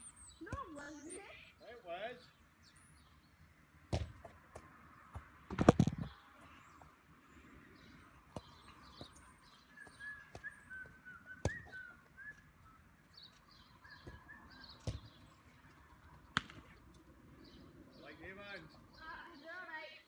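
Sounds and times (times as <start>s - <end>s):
birds chirping: 0.0s - 20.0s
football being kicked: 0.5s - 0.8s, 3.9s - 6.1s, 8.3s - 9.1s, 9.8s - 11.9s, 14.0s - 15.4s, 16.3s - 16.8s.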